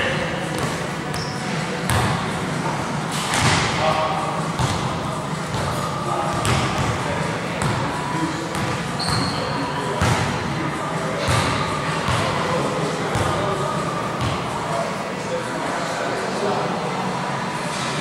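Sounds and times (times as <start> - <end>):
faint background voices: 0.0 - 18.0
basketball bouncing on gym floor: 1.9 - 2.2, 4.6 - 4.9, 5.5 - 7.0
brief high squeak: 9.0 - 9.5.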